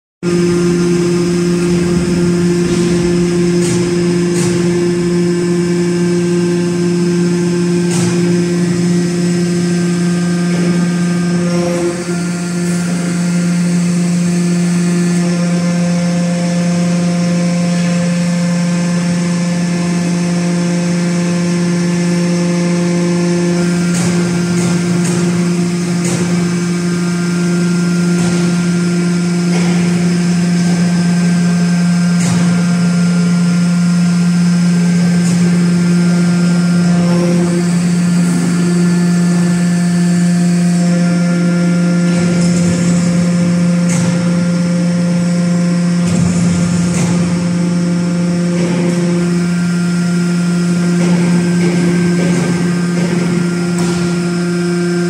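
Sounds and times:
hydraulic power unit humming: 0.2s - 55.0s.

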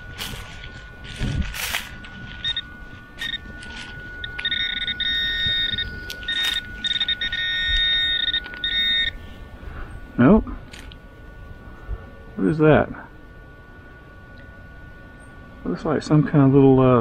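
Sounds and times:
dirt and leaves scraping: 0.0s - 7.4s
pinpointer beeping: 0.0s - 11.7s.

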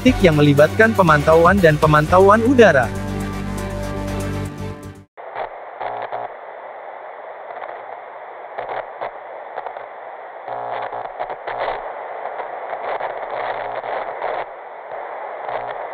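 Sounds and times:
television static hiss: 0.0s - 2.9s, 5.2s - 15.9s
buzzing crackling glitches: 5.2s - 6.6s, 7.4s - 15.9s.

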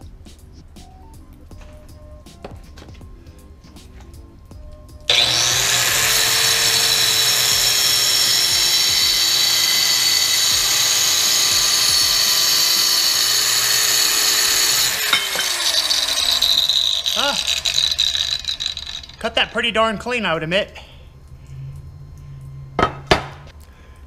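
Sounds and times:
tile saw whining: 5.1s - 19.8s.

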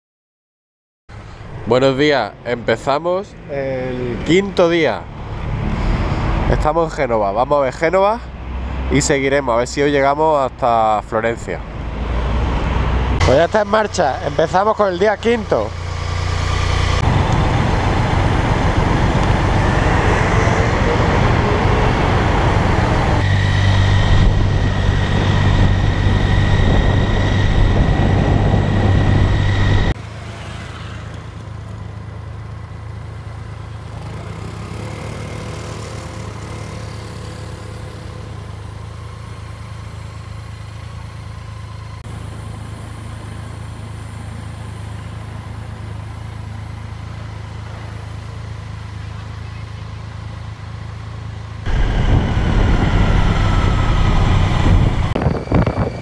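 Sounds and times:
city traffic hum: 1.1s - 56.0s
motorcycle engine running loudly: 13.2s - 30.8s, 32.4s - 56.0s.

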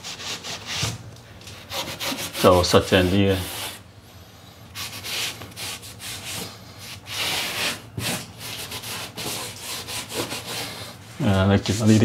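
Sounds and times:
towel scrubbing a ceiling: 1.6s - 3.8s, 4.8s - 11.0s.

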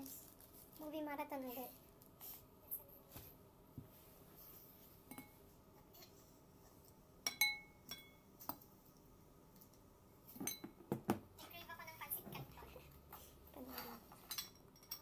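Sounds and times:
fork clinking on glass bowl: 7.2s - 8.2s.

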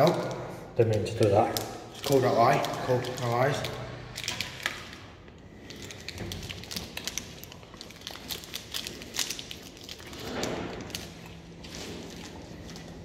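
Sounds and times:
plastic snack wrapper crackling: 0.8s - 13.0s.

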